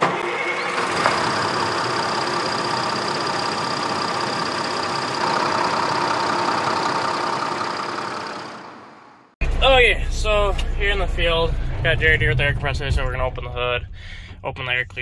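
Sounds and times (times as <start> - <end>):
heavy machine engine whining: 0.0 - 12.0.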